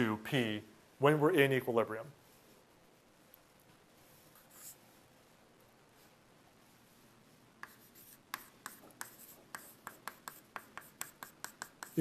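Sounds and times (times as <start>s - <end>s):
chalk writing on blackboard: 4.3s - 4.8s, 7.6s - 12.0s.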